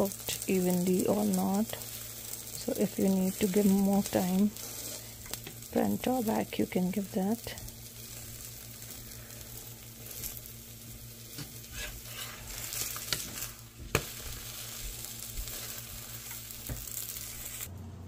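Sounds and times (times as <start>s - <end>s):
oil sizzling in a pan: 0.0s - 17.7s
metal spatula scraping a pan: 11.3s - 14.5s.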